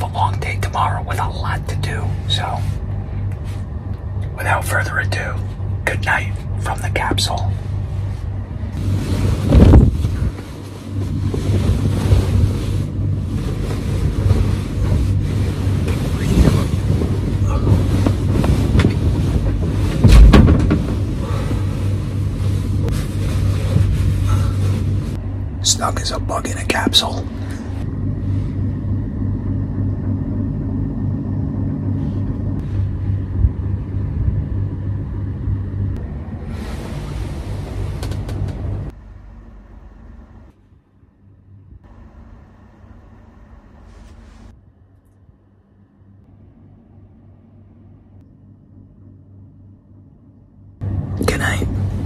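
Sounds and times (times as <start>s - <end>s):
steady low hum: 0.0s - 52.0s
comforter rustling: 8.0s - 25.2s
heavy thump: 17.6s - 21.2s.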